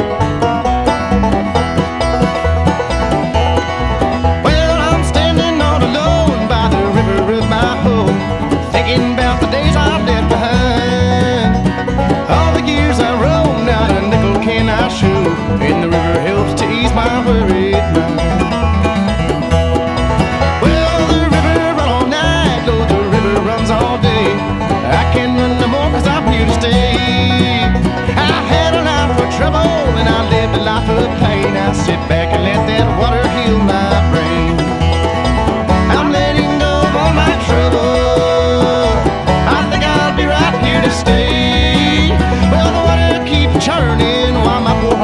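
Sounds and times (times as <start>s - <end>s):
country music with banjo and guitar: 0.0s - 45.0s
plucked-string melody: 0.0s - 45.0s.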